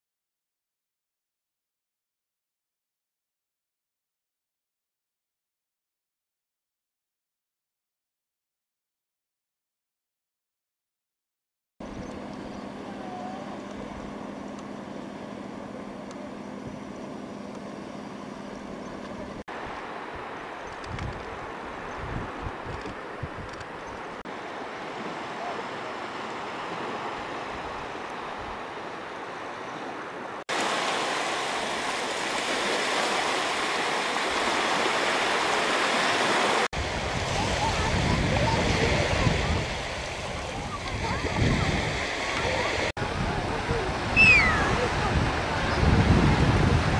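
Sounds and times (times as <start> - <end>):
surf washing: 17.7 - 46.9
wind noise: 19.2 - 24.2, 36.8 - 46.9.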